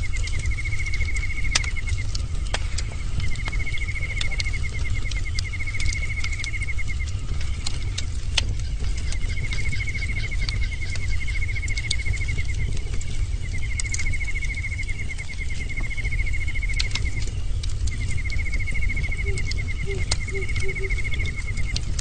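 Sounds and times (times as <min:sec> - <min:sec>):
bonfire rumbling: 0:00.0 - 0:22.0
fire crackles and pops: 0:00.0 - 0:22.0
insect trilling: 0:18.0 - 0:22.0.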